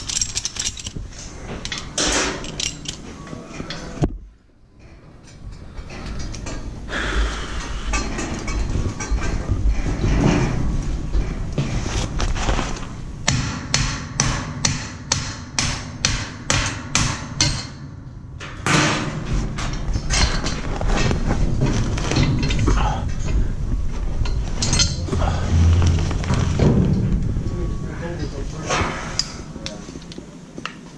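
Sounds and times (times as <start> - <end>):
scaffold parts knocking and clanking: 0.0 - 4.2, 13.2 - 23.4, 24.2 - 27.5
hammer blows on metal scaffolding: 13.3 - 18.0.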